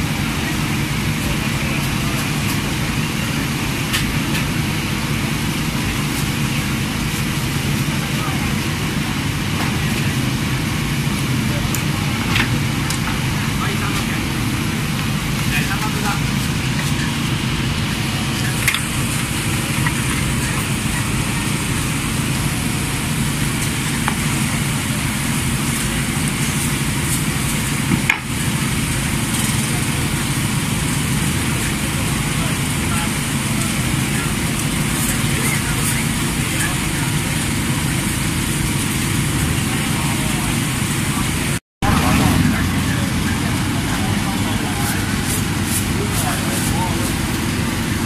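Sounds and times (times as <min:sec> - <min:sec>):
constant low roar: 0:00.0 - 0:48.0
oil sizzling: 0:12.6 - 0:48.0.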